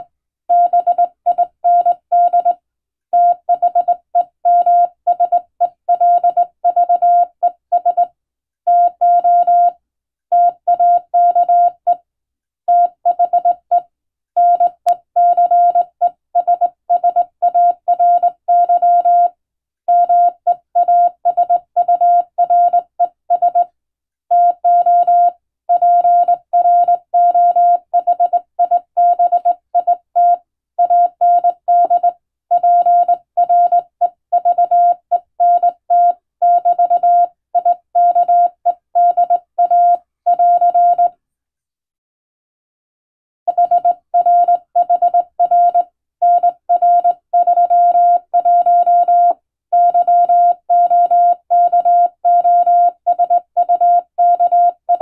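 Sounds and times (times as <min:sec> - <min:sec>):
morse code tone: 0:24.4 - 0:41.1, 0:43.5 - 0:55.0.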